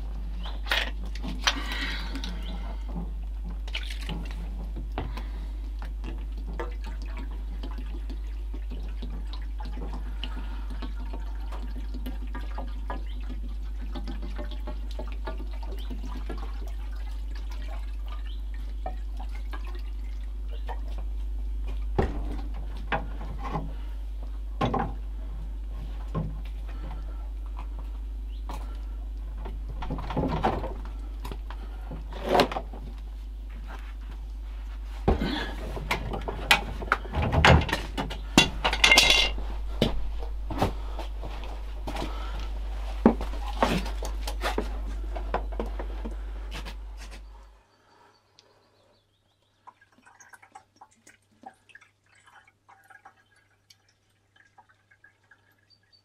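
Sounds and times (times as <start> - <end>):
water trickling and gurgling: 0.0 - 32.2, 47.0 - 56.0
knocks and clunks at pump: 21.7 - 23.8, 24.6 - 25.0, 29.4 - 32.9, 35.0 - 39.1.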